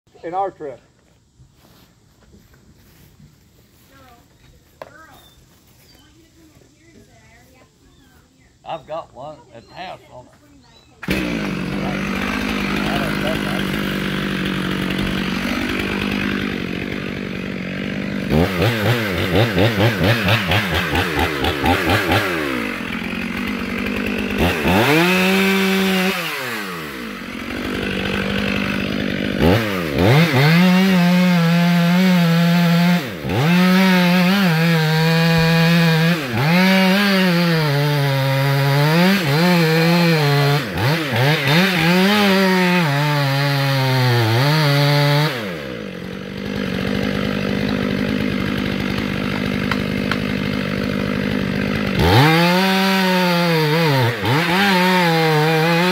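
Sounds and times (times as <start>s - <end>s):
chainsaw cutting wood: 10.2s - 55.9s.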